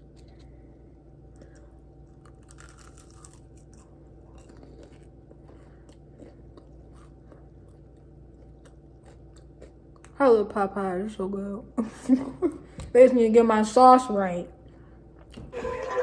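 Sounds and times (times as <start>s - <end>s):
chewing crunchy fried chicken: 0.0s - 10.2s
low hum: 0.0s - 16.0s.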